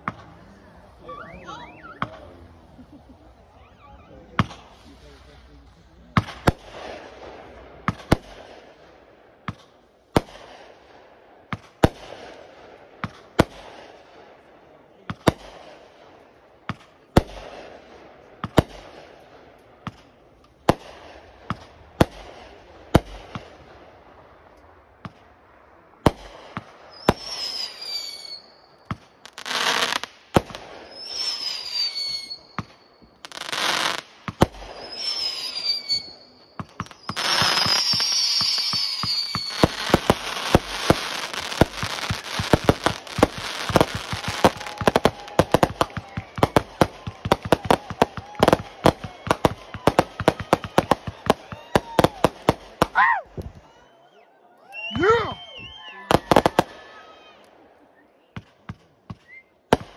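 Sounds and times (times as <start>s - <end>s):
hissing firework bursts: 0.0s - 14.2s, 16.7s - 53.6s
whistling fireworks: 0.0s - 14.2s, 16.7s - 59.9s
fireworks bangs: 0.0s - 53.8s, 55.0s - 57.0s, 58.4s - 59.9s.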